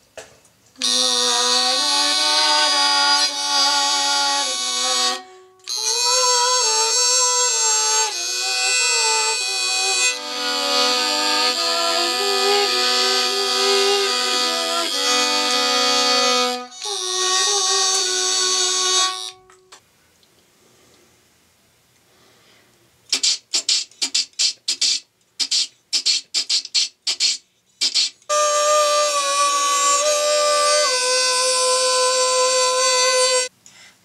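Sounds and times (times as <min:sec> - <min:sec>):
electronic-sounding bowed violin: 0:00.8 - 0:19.6, 0:28.3 - 0:33.5.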